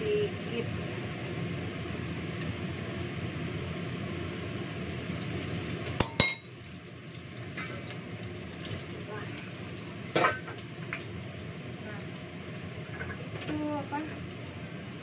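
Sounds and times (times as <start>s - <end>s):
steady kitchen hiss: 0.0s - 15.0s
metallic clinks of kitchenware: 6.0s - 6.5s.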